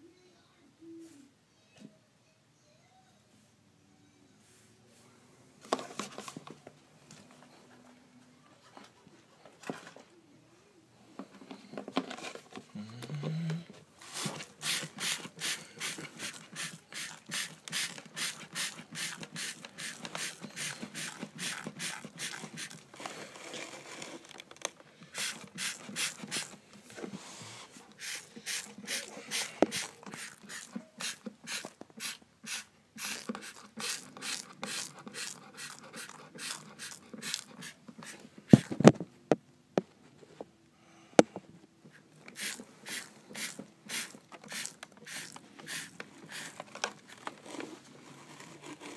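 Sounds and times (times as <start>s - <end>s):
spray bottle hissing bursts: 14.2s - 22.8s, 25.1s - 26.6s, 28.0s - 38.7s, 42.3s - 46.6s.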